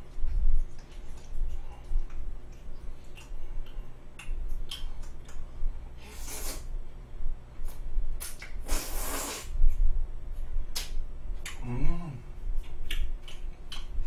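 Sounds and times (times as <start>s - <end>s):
man slurping spaghetti: 8.6s - 9.5s
man humming: 11.5s - 12.4s.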